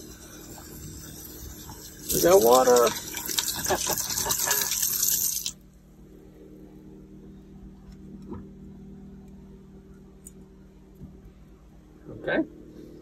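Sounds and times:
faucet running into steel sink: 0.0s - 5.6s
steady low hum: 0.0s - 13.0s.

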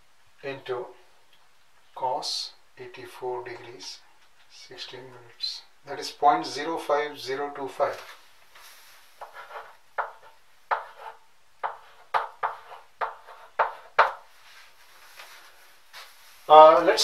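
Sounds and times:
chalk tapping and stroking on blackboard: 8.5s - 16.1s.

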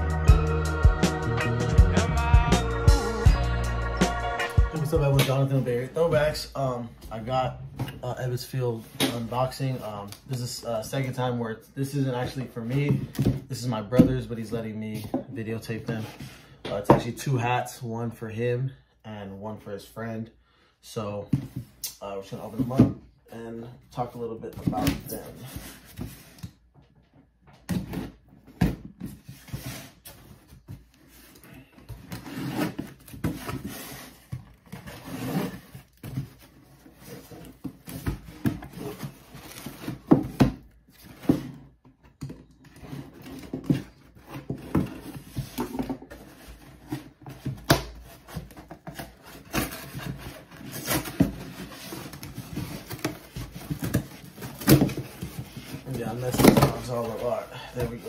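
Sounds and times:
cardboard box tearing and scraping: 32.0s - 41.7s, 42.7s - 58.0s.

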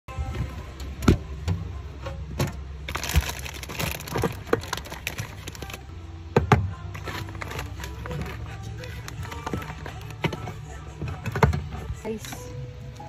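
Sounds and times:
plastic packets rustling: 2.9s - 5.9s, 7.0s - 10.2s.

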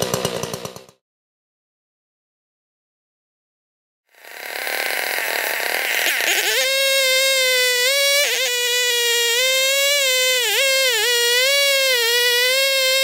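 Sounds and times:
chainsaw engine revving: 0.0s - 1.0s, 4.1s - 13.0s.

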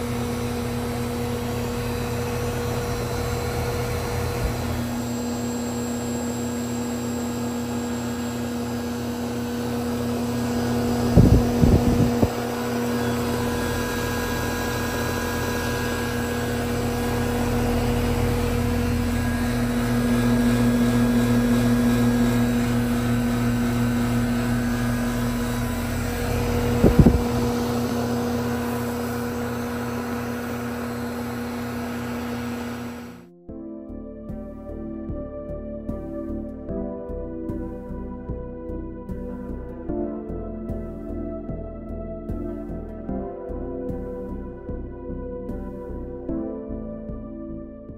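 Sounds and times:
heat pump mechanical hum: 0.0s - 33.3s.

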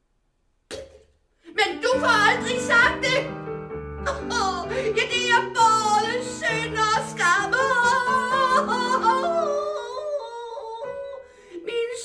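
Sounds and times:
woman singing with vibrato: 1.5s - 3.4s, 4.0s - 12.0s
keyboard accompaniment: 1.9s - 9.8s.

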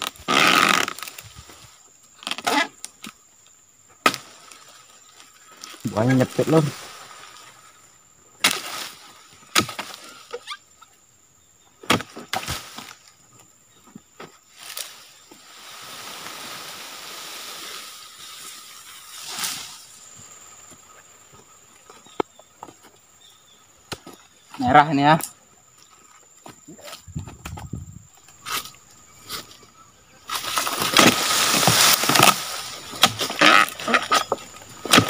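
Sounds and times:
fruit bunch dropping to ground: 30.3s - 35.0s.

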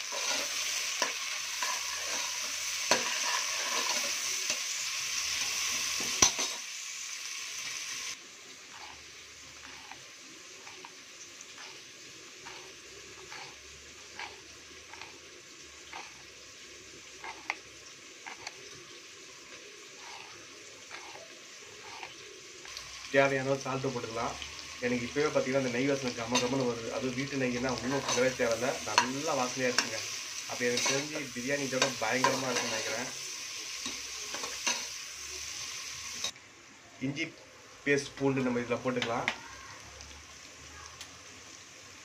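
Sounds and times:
onions sizzling in oil: 0.0s - 42.0s.

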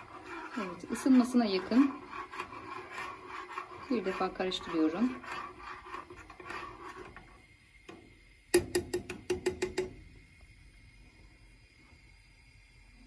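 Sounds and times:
teaspoon stirring with scraping clinks: 0.0s - 7.4s
spoon tapping pot rim: 8.5s - 10.0s.

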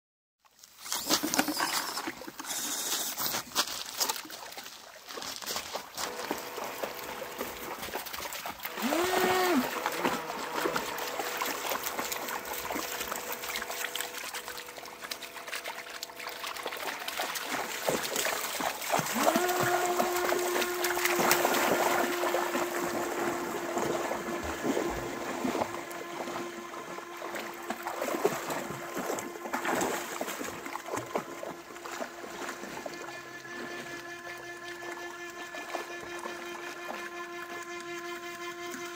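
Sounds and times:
dogs splashing through water: 1.0s - 38.4s
model boat motor whining: 5.9s - 38.9s.

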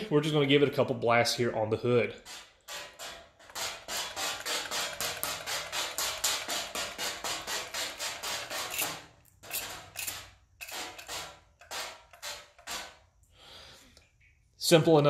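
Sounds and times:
spray bottle squirting water: 2.3s - 12.8s.

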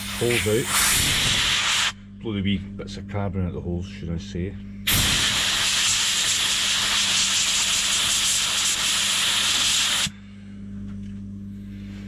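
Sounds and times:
compressed air blow gun hissing: 0.0s - 2.0s, 4.9s - 10.1s
steady low hum: 0.0s - 12.0s.

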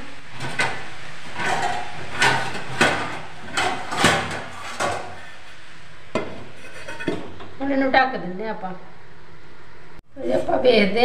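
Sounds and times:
steel kitchenware clanking: 0.3s - 7.6s.

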